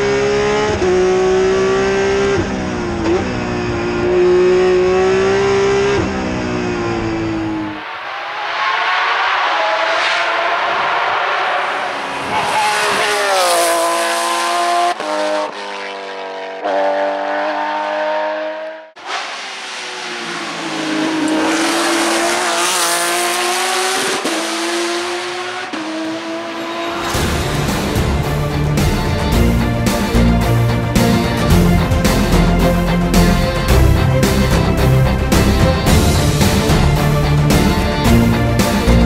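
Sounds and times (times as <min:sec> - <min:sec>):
rally car engine revving: 0:00.0 - 0:39.0.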